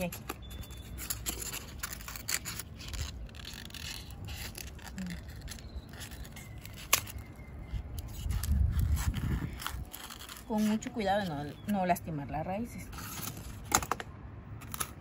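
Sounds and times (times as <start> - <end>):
styrofoam scraping and rustling: 0.0 - 11.7.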